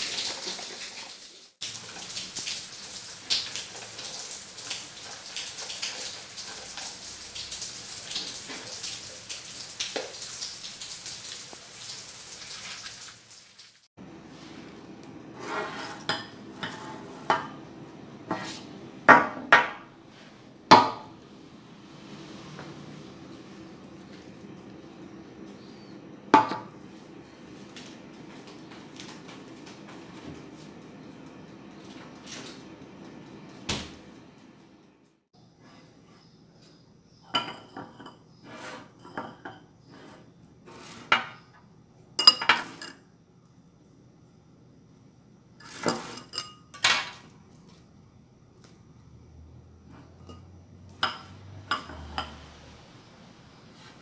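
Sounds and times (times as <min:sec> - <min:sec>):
light spoon scraping: 0:15.4 - 0:17.3, 0:38.0 - 0:41.1, 0:45.6 - 0:46.6.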